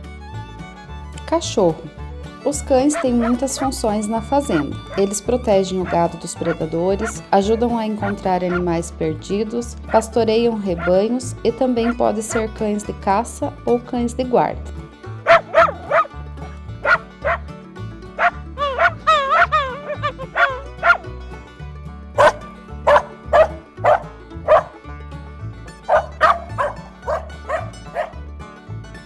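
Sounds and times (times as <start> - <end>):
background music with bass line: 0.0 - 29.0
dog barking: 2.9 - 3.8, 15.2 - 16.1, 16.8 - 17.4, 18.2 - 21.0, 22.2 - 24.8, 25.9 - 28.2
dog whining: 15.3 - 16.1, 16.8 - 17.4, 18.2 - 21.0, 22.2 - 24.8, 25.9 - 28.2.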